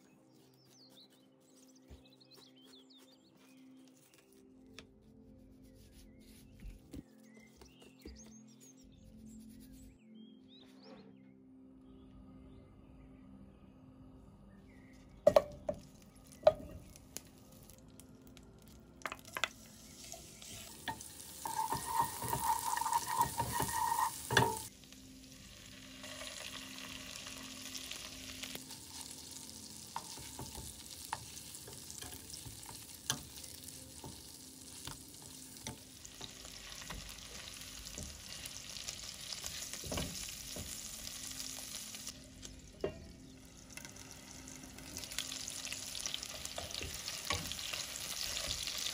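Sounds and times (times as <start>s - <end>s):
fish sizzling in a frying pan: 19.6s - 42.1s, 43.6s - 48.9s.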